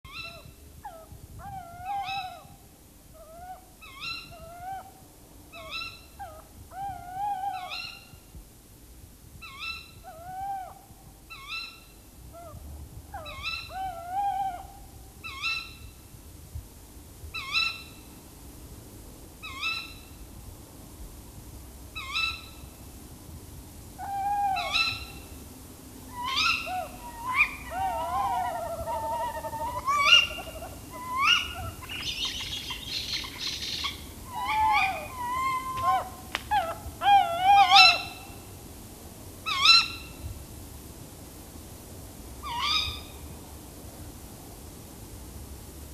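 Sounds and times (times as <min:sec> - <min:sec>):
owls alarm calls: 0:00.1 - 0:02.5, 0:03.2 - 0:05.0, 0:13.2 - 0:15.9, 0:24.0 - 0:25.3, 0:26.1 - 0:38.4, 0:39.5 - 0:40.2, 0:42.4 - 0:43.1.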